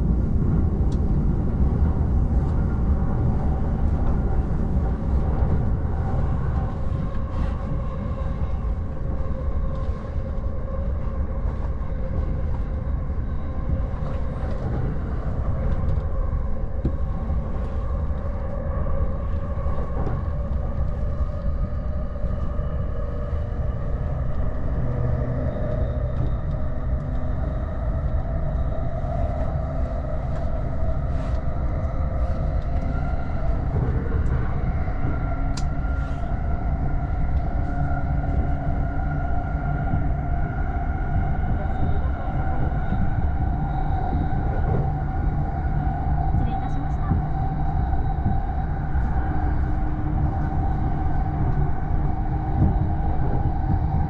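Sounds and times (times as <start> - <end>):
steady tonal hum: 0.0 - 54.0
train wheels rumbling on track: 32.2 - 54.0.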